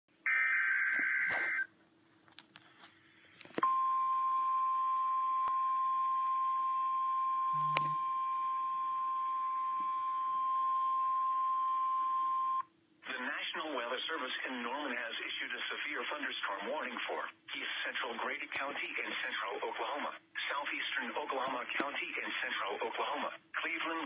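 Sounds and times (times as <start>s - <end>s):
steady warning alarm tone: 7.3s - 8.6s.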